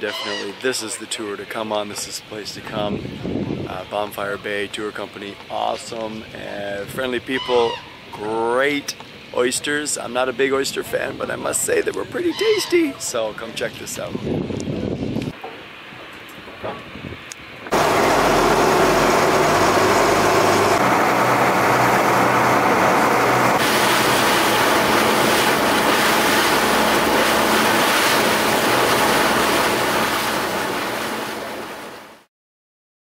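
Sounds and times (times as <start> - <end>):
rush of wind and water: 1.8 - 15.4, 16.4 - 32.3
boat engine hum: 17.7 - 32.3.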